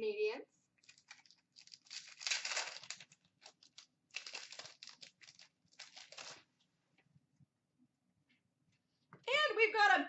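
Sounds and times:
plastic packaging crinkling: 0.8s - 6.5s.

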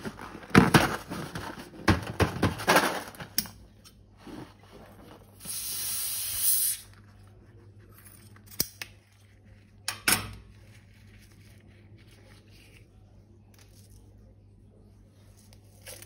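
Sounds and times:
pressurised gas hissing: 5.4s - 6.8s.

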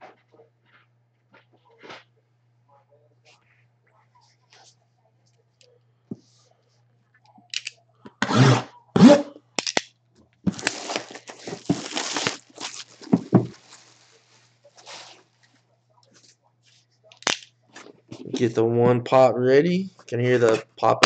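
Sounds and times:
shrink wrap crinkling and tearing: 10.5s - 15.4s, 17.1s - 17.5s.

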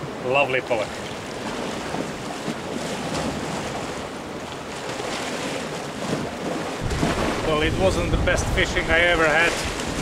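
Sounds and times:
sea surf against rocks: 0.0s - 10.0s
wind noise on microphone: 6.0s - 10.0s.

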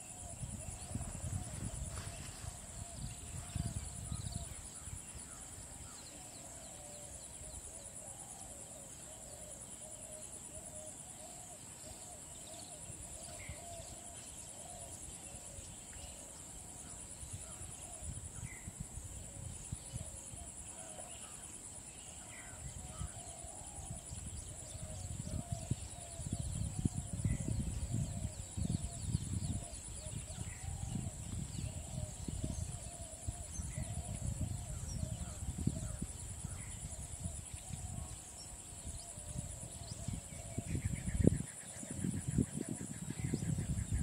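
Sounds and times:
wind rumble on microphone: 0.0s - 6.1s, 15.0s - 20.8s, 22.5s - 44.0s.

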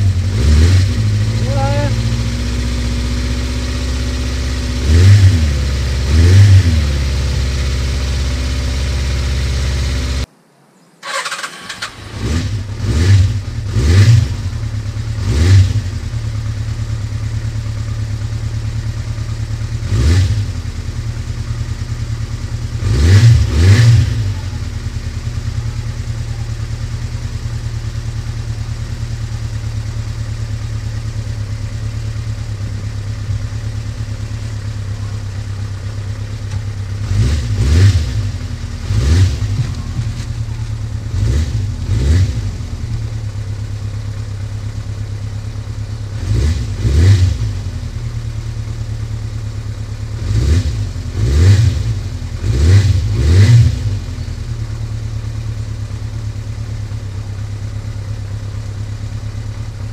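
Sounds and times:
motorcycle engine revving and idling: 0.0s - 10.3s, 11.0s - 59.9s.

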